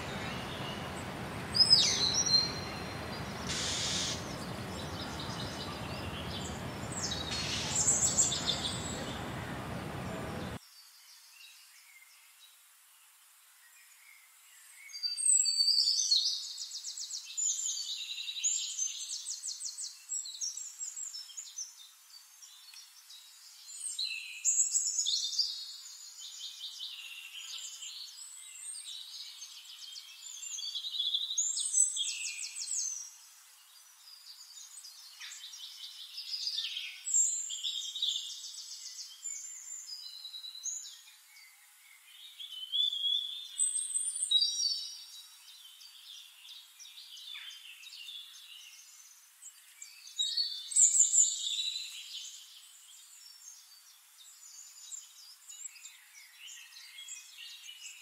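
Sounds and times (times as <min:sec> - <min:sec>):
songbird trills and twitters: 0:00.0 - 0:10.6.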